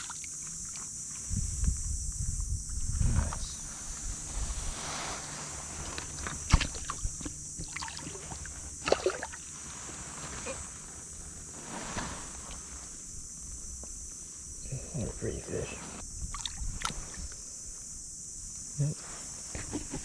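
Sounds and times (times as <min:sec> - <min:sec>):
high insect buzz: 0:00.0 - 0:20.0
fish splashing in shallow water: 0:05.9 - 0:09.6.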